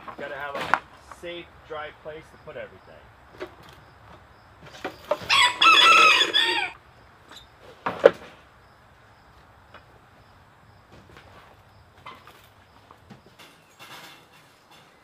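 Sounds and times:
rooster crowing: 5.2s - 6.8s.

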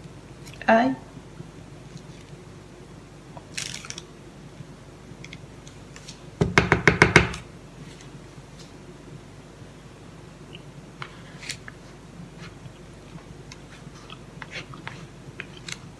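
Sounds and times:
wooden spoon knocking loaf pan: 6.4s - 7.4s.

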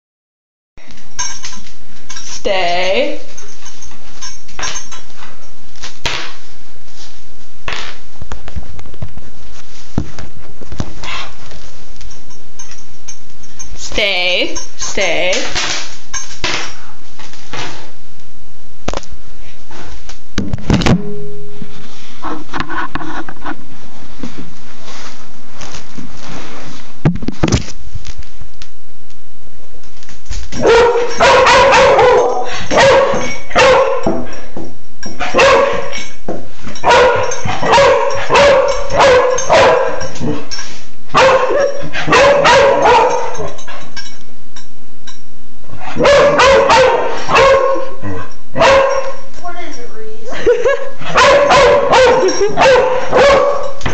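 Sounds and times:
knocks and thumps: 20.4s - 21.2s, 27.0s - 27.7s
dog barking excitedly: 30.6s - 34.3s, 35.2s - 36.1s, 36.8s - 40.4s, 41.1s - 43.6s, 45.9s - 49.3s, 51.0s - 53.9s.

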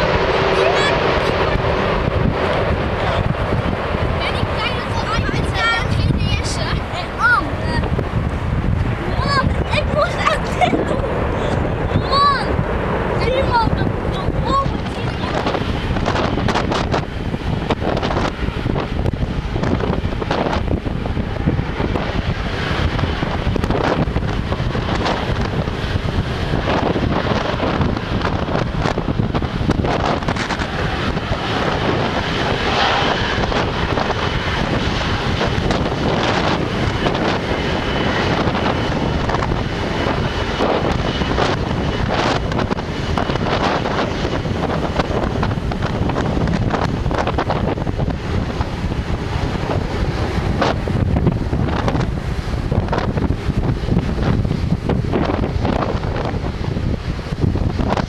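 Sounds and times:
high engine whine: 0.0s - 58.0s
jet engines running: 0.0s - 58.0s
wind buffeting microphone: 0.0s - 58.0s.

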